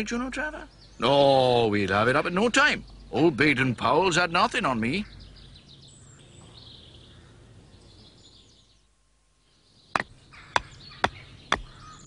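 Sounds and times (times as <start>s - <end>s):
faint bird chirps: 0.0s - 12.0s
mallet knocking tent peg: 10.0s - 11.7s.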